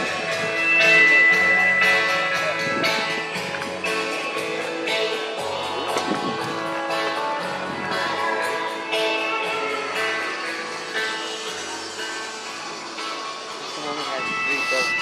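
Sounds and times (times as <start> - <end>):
guitar music with steady beat: 0.0 - 15.0.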